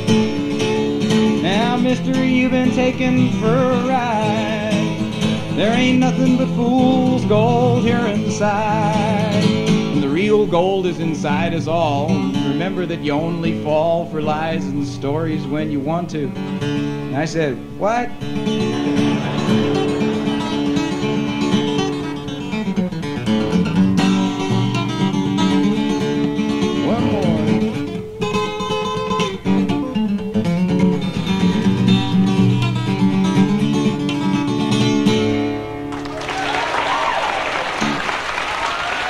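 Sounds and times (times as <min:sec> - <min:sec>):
acoustic guitar playing: 0:00.0 - 0:37.0, 0:37.8 - 0:38.5
audience applause and cheering: 0:18.6 - 0:21.4, 0:35.9 - 0:39.0.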